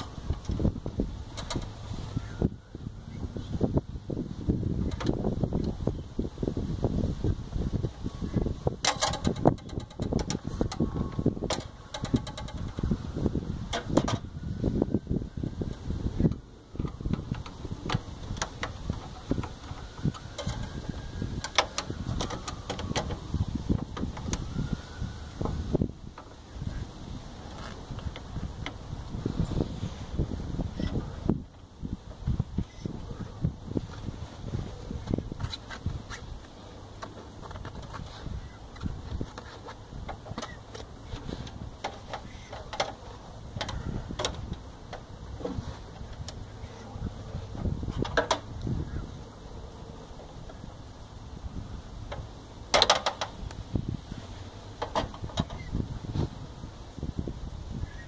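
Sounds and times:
clicks and knocks in metal panel: 52.1 - 53.3.

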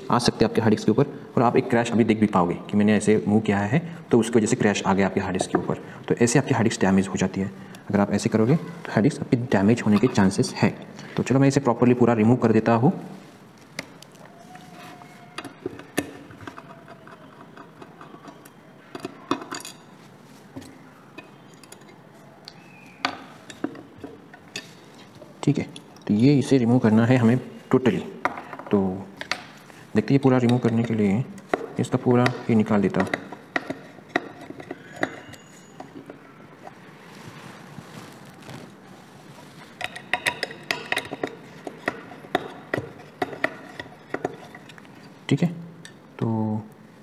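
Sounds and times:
soft handling noise: 13.0 - 45.3.

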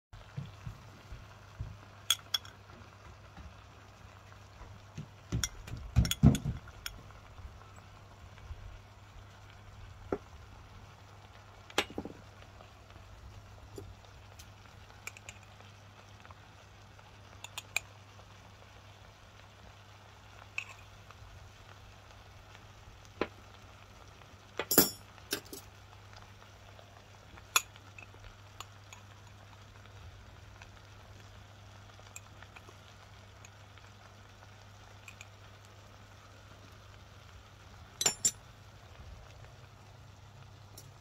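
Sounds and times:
steel spoon clinking: 2.1 - 2.5, 24.7 - 25.6, 38.0 - 38.4.

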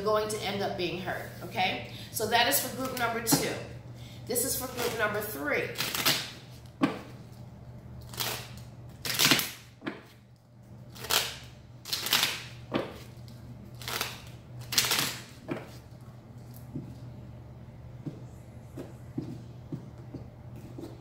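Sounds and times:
playing cards riffling: 10.9 - 16.7.

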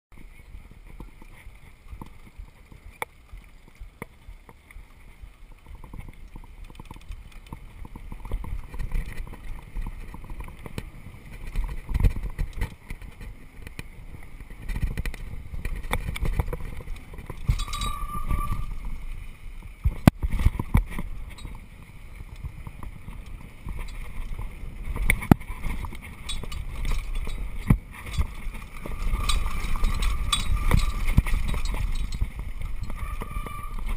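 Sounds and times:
bike rattling over bumps: 0.1 - 33.9
wind rushing over microphone: 7.7 - 33.9
disc brakes squealing: 17.4 - 19.0, 27.9 - 33.9.

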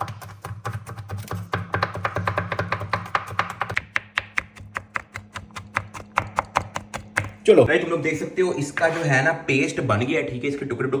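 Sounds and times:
knife chopping on plastic board: 0.0 - 7.4.

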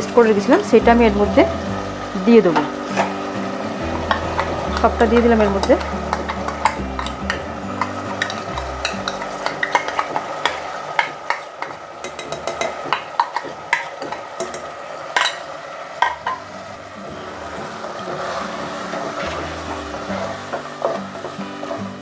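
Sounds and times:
meat sizzling in a pot: 0.0 - 22.0
spoon scraping and stirring: 4.0 - 14.6.

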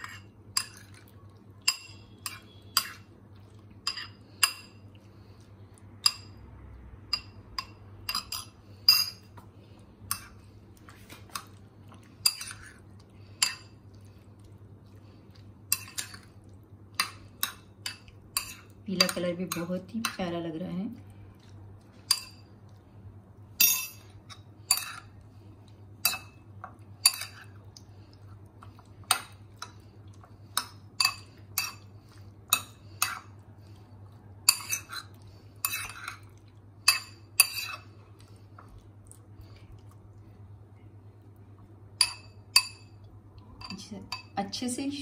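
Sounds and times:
faint low hum: 0.0 - 45.0
spoon clinking against ceramic bowl: 1.6 - 3.0, 7.1 - 9.3, 23.6 - 24.1, 42.0 - 43.0.

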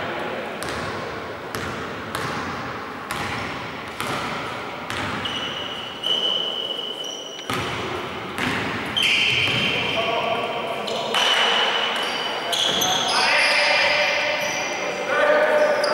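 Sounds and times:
basketball bouncing on wooden floor: 1.5 - 5.4, 7.5 - 8.8.

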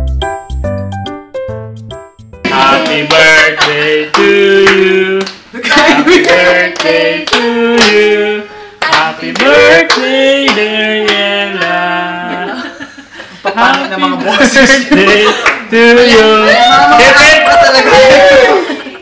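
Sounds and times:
voices singing: 2.5 - 12.8.

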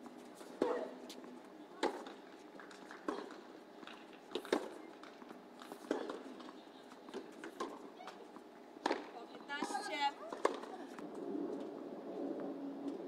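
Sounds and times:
tennis ball hit by racquets: 1.8 - 6.5, 8.8 - 10.7.

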